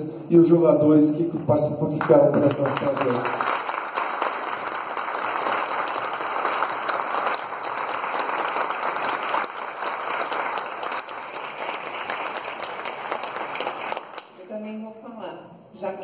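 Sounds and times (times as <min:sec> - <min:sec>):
crowd applauding: 0:02.0 - 0:14.4.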